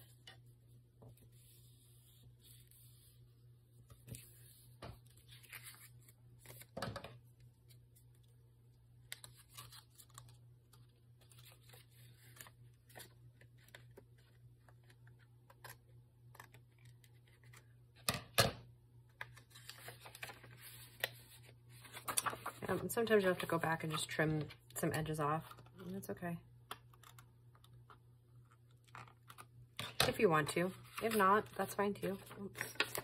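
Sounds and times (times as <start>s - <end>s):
paper rustling: 3.9s - 6.8s, 19.3s - 22.9s, 30.7s - 33.0s
paper crackle: 32.2s - 33.0s.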